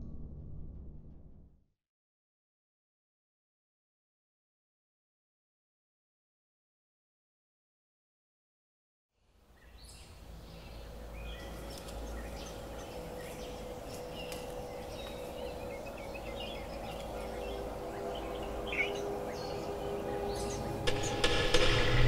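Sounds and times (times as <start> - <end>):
low rumble: 0.0 - 1.6
bird chirps: 9.6 - 21.6
steady hum: 10.0 - 22.0.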